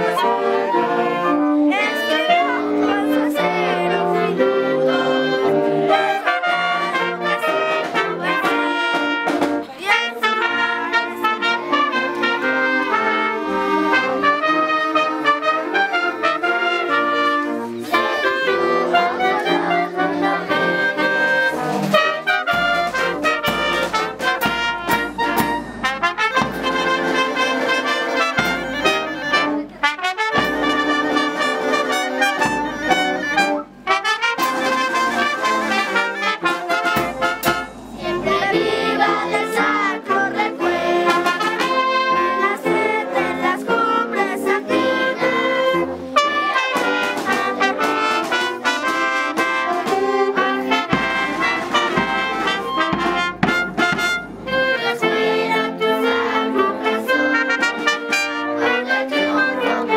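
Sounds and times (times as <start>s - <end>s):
wind band playing: 0.0s - 59.9s
drums: 5.7s - 11.6s, 12.2s - 58.4s.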